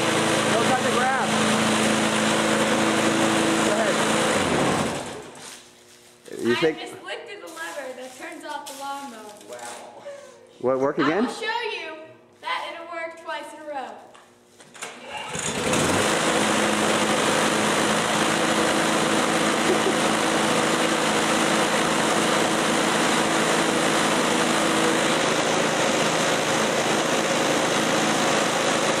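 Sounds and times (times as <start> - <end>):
lawn mower engine pull-started: 0.0 - 5.5, 14.7 - 29.0
lawn mower engine running: 0.0 - 5.5, 14.7 - 29.0.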